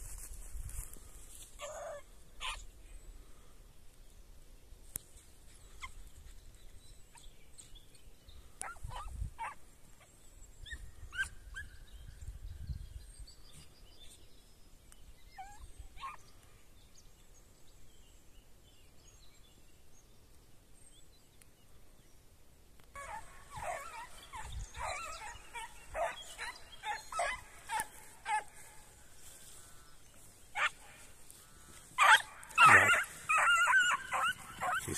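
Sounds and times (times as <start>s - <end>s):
dogs yelping: 1.6s - 2.6s, 23.0s - 28.6s, 30.6s - 30.8s, 32.0s - 34.9s
wind rumble on microphone: 8.8s - 9.4s, 10.6s - 13.5s, 24.2s - 25.4s.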